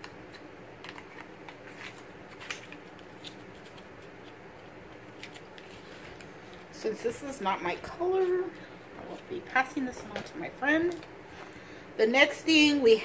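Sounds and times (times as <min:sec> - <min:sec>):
low room hum: 0:00.0 - 0:13.0
small clicks and rustles of packaging: 0:00.3 - 0:07.4.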